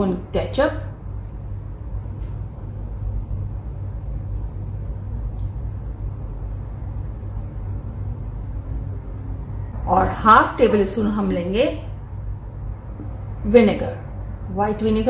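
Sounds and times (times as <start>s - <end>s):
low rumble: 0.9s - 14.7s.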